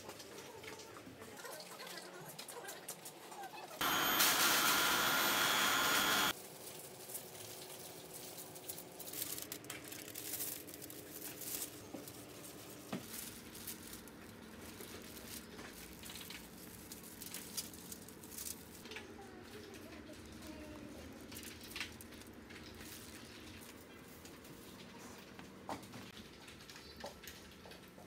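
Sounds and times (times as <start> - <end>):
plastic gloves and foil crinkling: 0.0 - 28.0
loud steady noise: 3.8 - 6.3.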